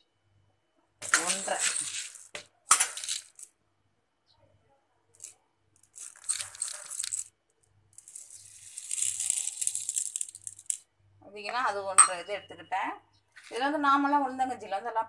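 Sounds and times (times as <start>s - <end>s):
grains poured onto steel plate: 1.0s - 3.2s, 5.9s - 7.3s, 8.0s - 10.8s.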